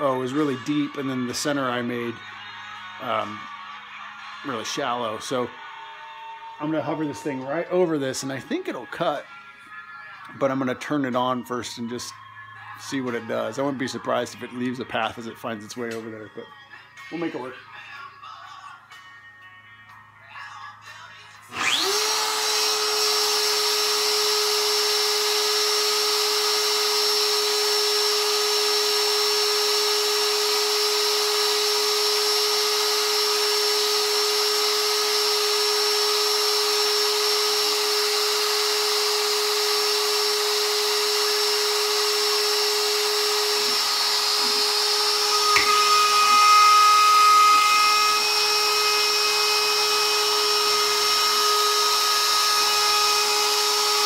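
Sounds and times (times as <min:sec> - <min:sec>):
router whining: 0:21.5 - 0:54.0
stepper motors whining: 0:21.6 - 0:54.0.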